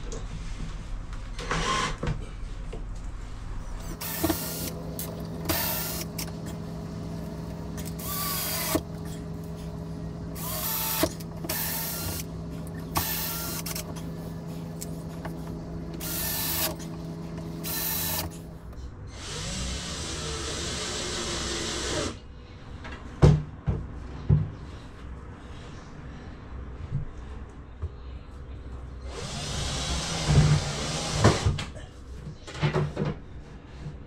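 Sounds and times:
steady low hum: 2.5s - 29.4s
cordless drill driving screws: 3.8s - 6.6s, 7.8s - 9.2s, 10.4s - 14.1s, 15.9s - 18.4s.

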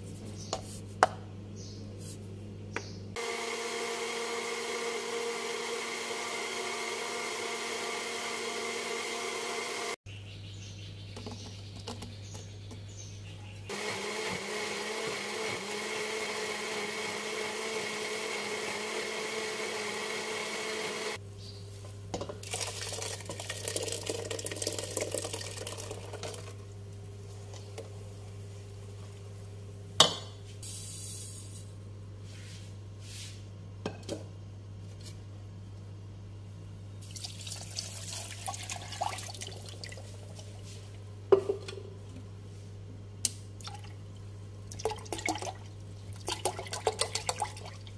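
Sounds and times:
blender motor running: 3.2s - 10.0s, 13.7s - 21.2s.

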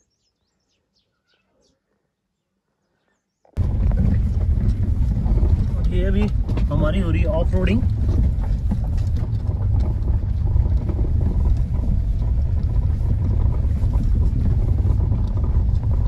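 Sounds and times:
motorcycle engine rumble: 3.6s - 16.0s
wind buffeting microphone: 3.6s - 16.0s.

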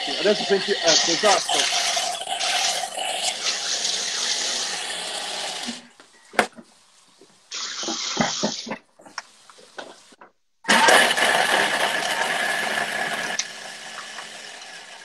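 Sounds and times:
food processor chopping nuts: 0.0s - 5.9s, 10.7s - 15.0s.

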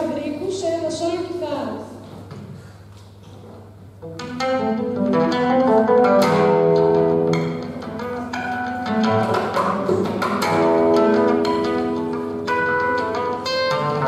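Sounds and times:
acoustic guitar playing: 4.0s - 14.0s.

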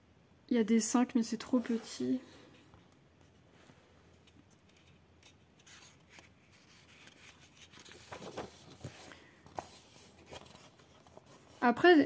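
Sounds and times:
faint paper rustling: 1.4s - 12.0s.

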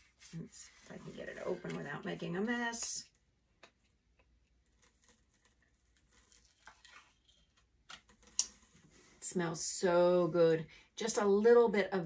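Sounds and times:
foil seal crinkling: 4.6s - 8.7s.

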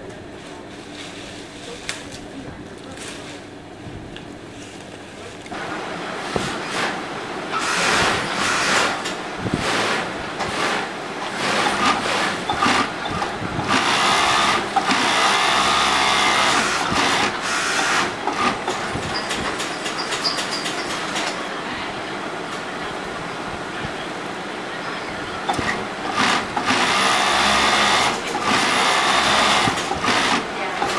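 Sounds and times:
sewing machine stitching: 6.6s - 21.4s, 25.5s - 30.9s.

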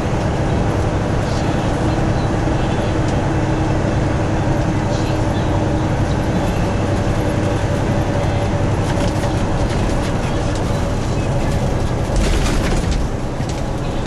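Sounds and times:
road noise: 0.0s - 14.0s
truck engine drone: 0.0s - 14.0s.

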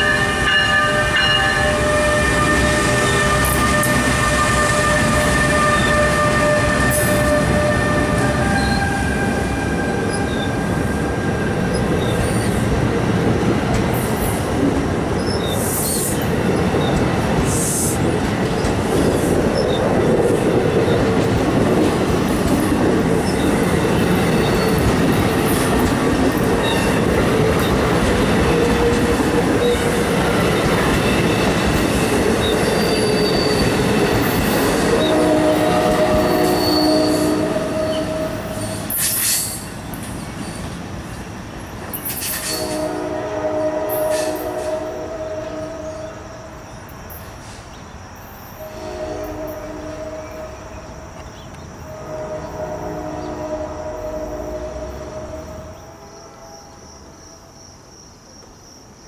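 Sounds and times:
high wheel squeals: 0.0s - 12.6s, 26.6s - 40.8s
train wheels rumbling on rail: 0.0s - 58.6s.

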